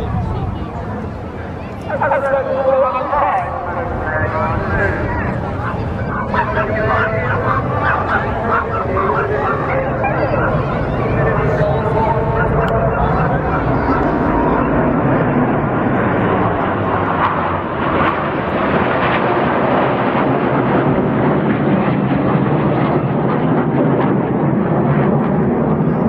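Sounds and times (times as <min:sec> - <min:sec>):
jet engines rushing: 0:00.0 - 0:26.0.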